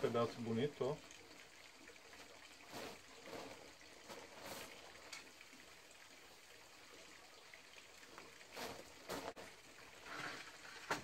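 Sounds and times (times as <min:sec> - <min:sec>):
charcoal grill hiss and crackles: 0:02.2 - 0:05.3, 0:08.4 - 0:11.0.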